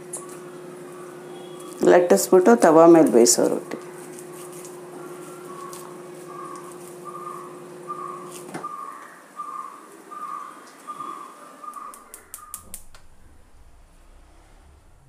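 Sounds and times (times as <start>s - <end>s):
low steady hum: 0.0s - 15.0s
sharp clicks: 11.7s - 13.1s.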